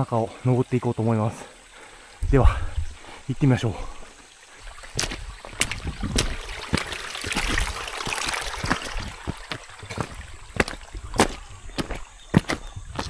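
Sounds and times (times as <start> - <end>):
stream running over rocks: 0.0 - 13.0
footsteps splashing on wet stones: 4.6 - 13.0.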